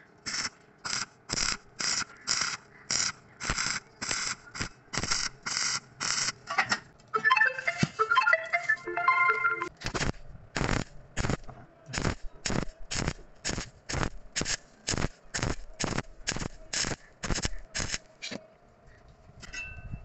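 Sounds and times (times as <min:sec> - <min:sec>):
welding arc crackling: 0:00.2 - 0:06.5, 0:09.8 - 0:18.1.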